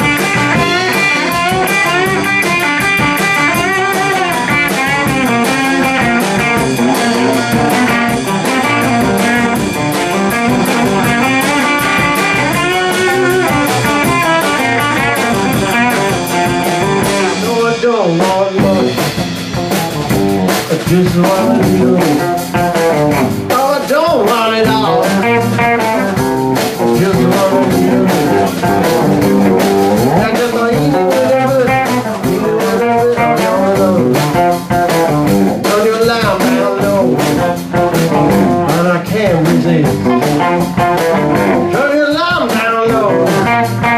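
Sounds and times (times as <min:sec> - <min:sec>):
bass guitar: 0:00.0 - 0:43.9
drum kit: 0:00.0 - 0:43.9
electric guitars bending notes: 0:00.0 - 0:43.9.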